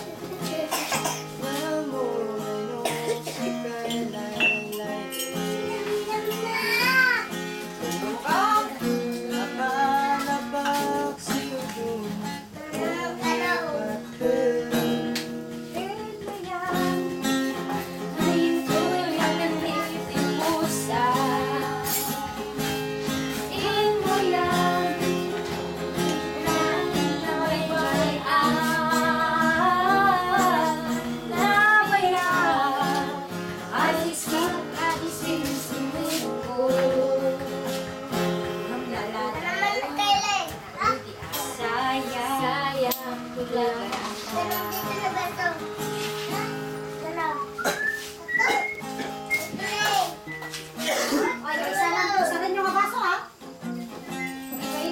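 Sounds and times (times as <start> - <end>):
person singing: 0.0 - 22.6, 23.2 - 40.0, 41.4 - 45.5
acoustic guitar strumming: 0.0 - 54.9.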